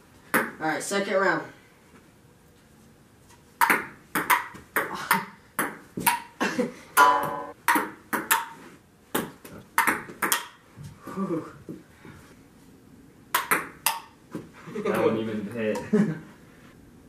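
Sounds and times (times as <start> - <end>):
ping pong ball clicking: 9.8 - 10.6, 13.3 - 14.2.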